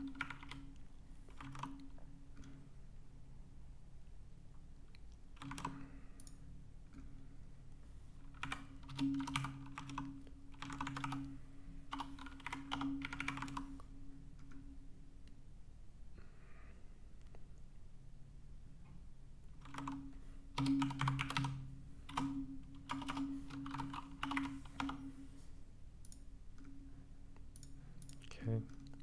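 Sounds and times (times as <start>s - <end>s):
typing on computer keyboard: 0.0s - 2.6s, 5.3s - 6.4s, 8.3s - 11.3s, 11.9s - 13.8s, 19.6s - 25.1s
faint steady low hum: 0.0s - 29.0s.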